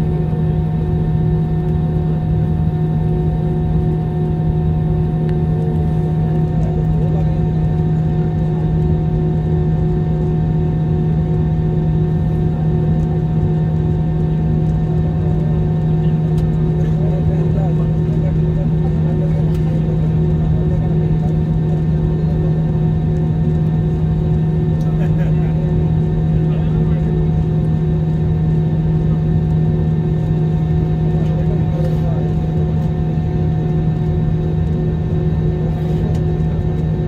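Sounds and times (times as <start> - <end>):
airliner engines humming: 0.0 - 37.0.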